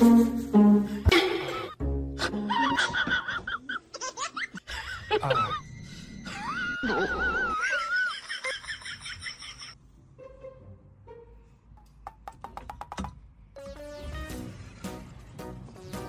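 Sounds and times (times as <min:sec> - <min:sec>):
person laughing: 0:01.0 - 0:05.6, 0:06.3 - 0:09.7.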